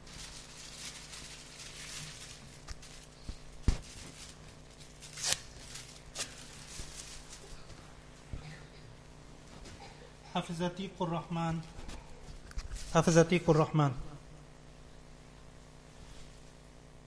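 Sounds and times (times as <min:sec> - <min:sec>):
rustling: 0:00.0 - 0:07.9
steady low hum: 0:00.0 - 0:17.0.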